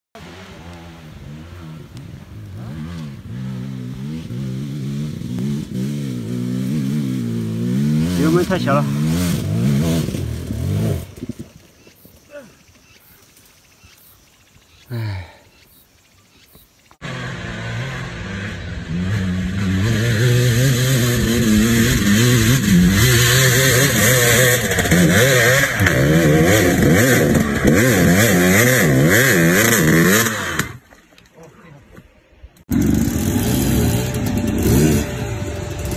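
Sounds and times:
dirt bike engine revving: 0.2 - 11.4, 17.0 - 30.8, 32.7 - 35.9.

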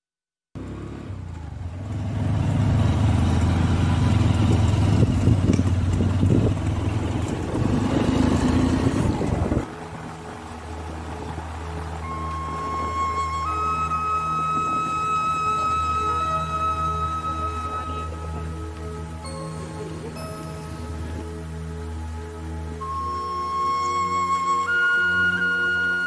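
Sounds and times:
motorcycle engine running: 0.6 - 13.5
road and wind noise: 0.6 - 26.0
soft music: 6.6 - 26.0.

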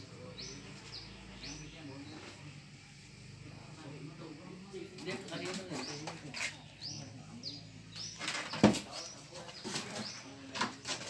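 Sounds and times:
bird chirping: 0.2 - 2.4, 5.1 - 10.8.

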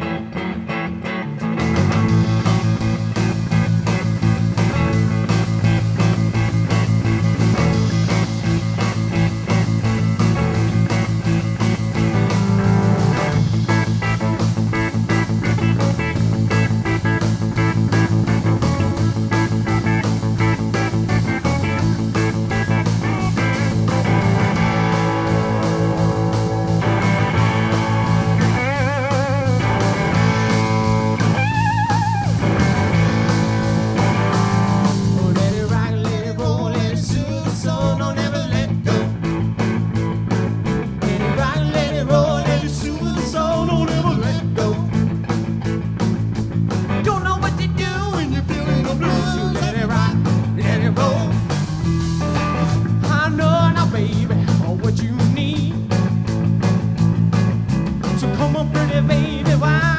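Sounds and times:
bent electric guitar notes: 0.0 - 59.9
drum kit: 0.0 - 59.9
rock and roll band playing: 0.0 - 59.9
person singing lead vocal: 35.0 - 39.3, 41.0 - 45.1, 47.0 - 51.6, 52.9 - 55.9, 58.1 - 59.9.

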